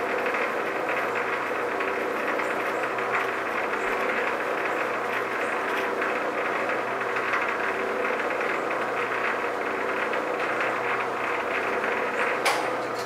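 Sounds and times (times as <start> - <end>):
metal lathe humming: 0.0 - 13.0.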